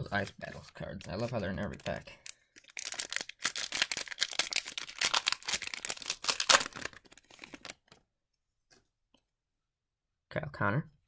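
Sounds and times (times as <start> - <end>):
plastic wrapper crinkling: 0.2 - 8.0.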